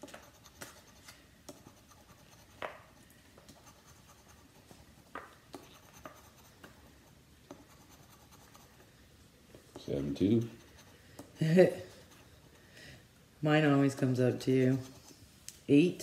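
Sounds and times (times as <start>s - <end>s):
coin scratching lottery ticket: 0.0s - 2.6s, 5.6s - 8.8s, 9.9s - 11.0s, 14.3s - 15.2s.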